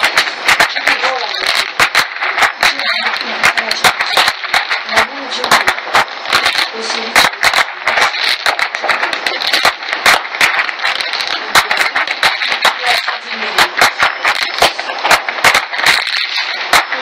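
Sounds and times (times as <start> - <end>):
crackling hiss: 0.0 - 17.0
firecracker bangs and cracks: 0.0 - 17.0.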